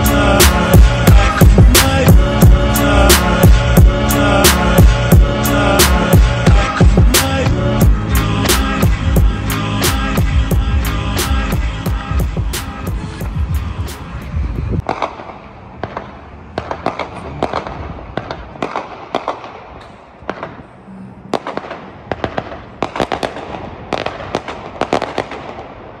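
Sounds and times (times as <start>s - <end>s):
background music: 0.0s - 14.8s
fireworks bangs and crackling pops: 14.8s - 20.7s, 21.3s - 26.0s.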